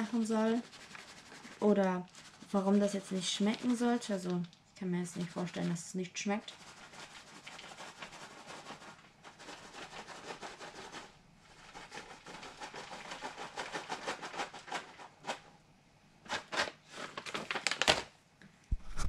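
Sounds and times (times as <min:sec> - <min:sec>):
shredded cheese rustling: 0:00.0 - 0:04.3, 0:06.4 - 0:15.4, 0:16.3 - 0:18.0.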